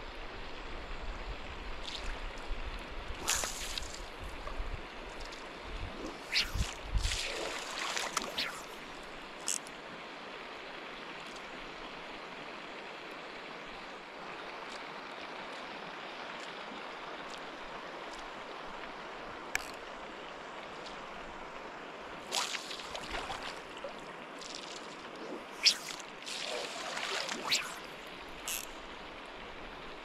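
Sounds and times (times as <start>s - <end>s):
river water flowing and lapping: 0.0s - 30.0s
water splashes: 3.2s - 4.2s, 5.9s - 9.7s, 22.2s - 30.0s.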